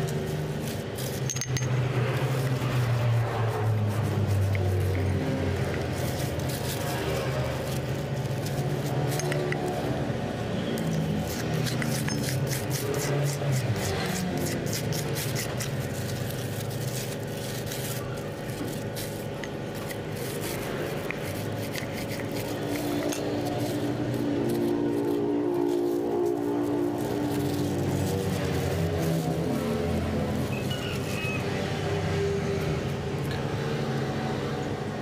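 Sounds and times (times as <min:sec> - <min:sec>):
plastic sheeting crackling: 0:02.0 - 0:09.8, 0:14.6 - 0:32.0
knife scraping paste: 0:10.6 - 0:31.4.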